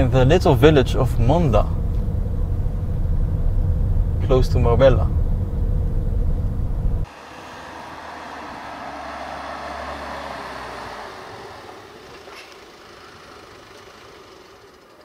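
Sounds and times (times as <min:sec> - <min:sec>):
car driving past: 0:07.0 - 0:15.0.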